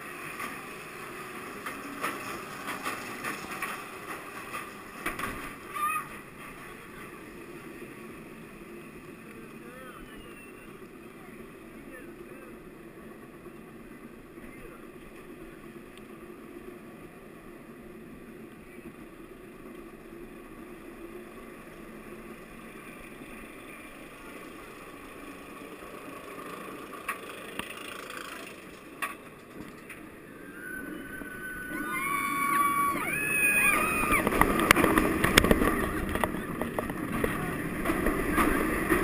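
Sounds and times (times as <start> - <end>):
roller coaster chain lift rumble: 0.0 - 39.0
riders yelling: 30.4 - 34.4.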